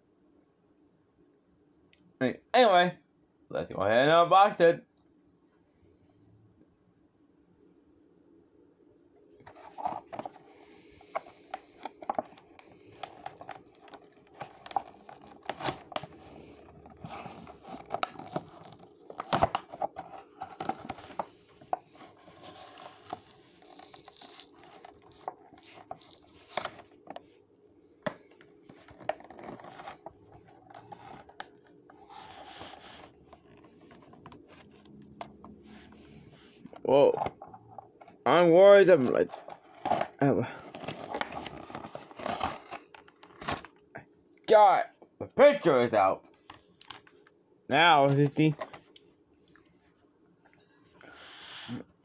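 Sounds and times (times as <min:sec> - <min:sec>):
plastic blister crinkling: 0:09.5 - 0:27.4, 0:28.0 - 0:35.0, 0:39.0 - 0:43.8
cardboard tearing: 0:11.7 - 0:26.9, 0:28.8 - 0:34.9, 0:39.0 - 0:43.7.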